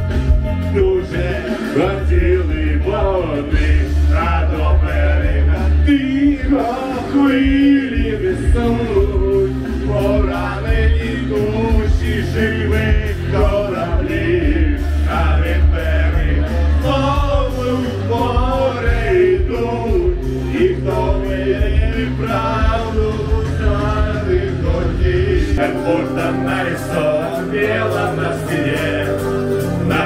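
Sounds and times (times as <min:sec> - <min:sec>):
backing track with strong bass: 0:00.0 - 0:30.0
man singing karaoke: 0:00.1 - 0:30.0.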